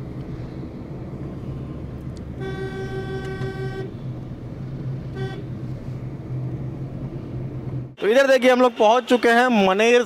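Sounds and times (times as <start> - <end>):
car engine hum: 0.0 - 8.0
road noise inside car: 0.0 - 10.0
car horn: 2.4 - 4.0, 5.1 - 5.6.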